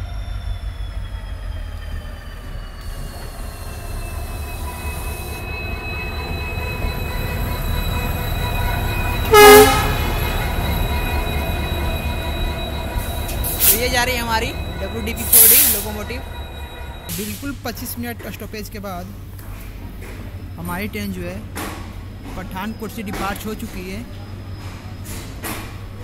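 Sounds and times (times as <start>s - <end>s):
locomotive high whine: 0.0s - 18.2s
diesel locomotive rumbling: 0.0s - 26.0s
locomotive horn blast: 8.0s - 12.6s.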